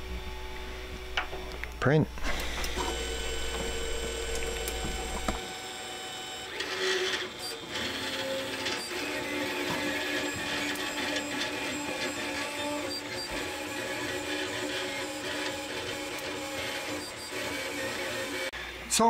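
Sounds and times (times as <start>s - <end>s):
low hum: 0.0s - 5.4s
stepper motors whining: 0.0s - 18.5s.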